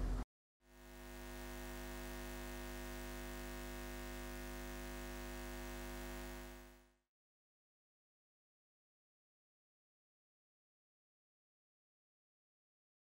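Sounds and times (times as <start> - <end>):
electric hum with hiss: 0.0 - 6.9.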